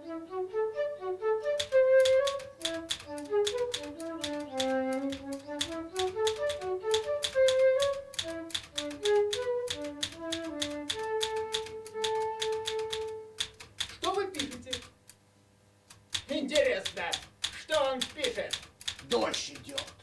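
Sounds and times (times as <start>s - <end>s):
woodwind melody: 0.0s - 13.5s
typewriter keys clattering: 1.6s - 15.0s, 16.1s - 20.0s.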